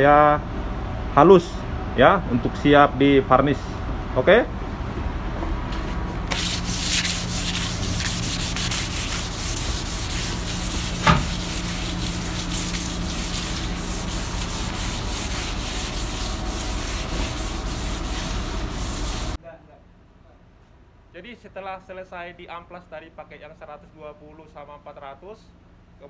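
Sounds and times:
steady low hum: 0:00.0 - 0:26.0
sandpaper rubbing on wood: 0:06.3 - 0:19.4
sharp knock: 0:11.0 - 0:11.3.

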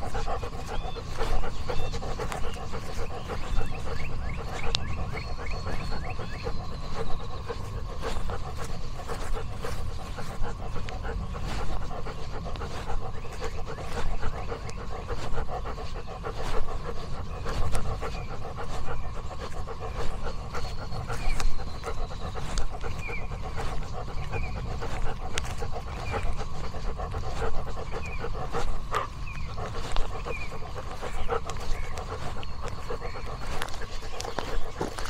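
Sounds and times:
dog panting: 0:00.0 - 0:35.0.

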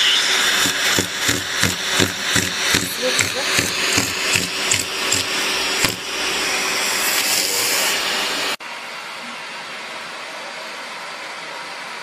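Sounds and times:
vacuum cleaner hissing: 0:00.0 - 0:08.6.

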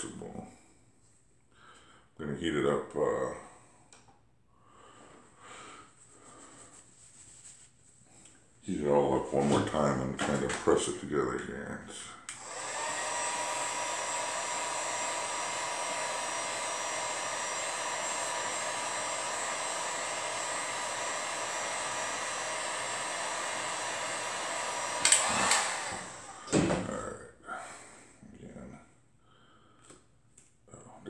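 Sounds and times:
heat gun blowing air: 0:12.3 - 0:26.8.

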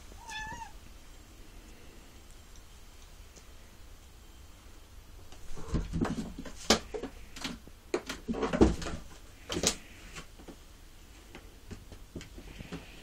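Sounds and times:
cat thumping and scrabbling: 0:05.5 - 0:07.1.

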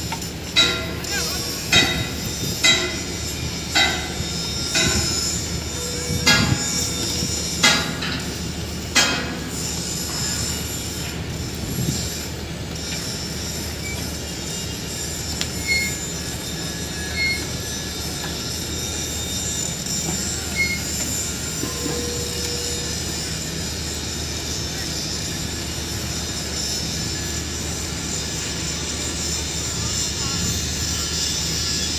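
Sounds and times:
crane tracks squealing: 0:00.0 - 0:31.9.

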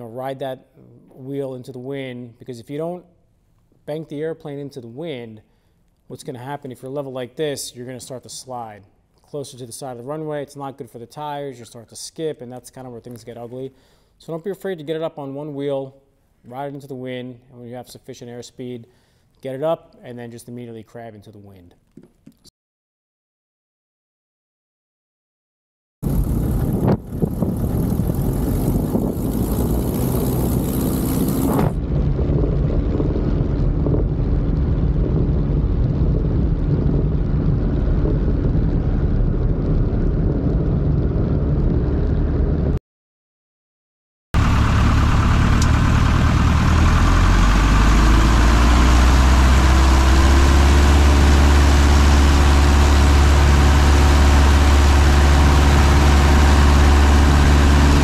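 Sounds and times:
airplane engine and propeller: 0:26.0 - 0:42.8, 0:44.4 - 0:58.0
wind rushing on microphone: 0:26.0 - 0:42.8.

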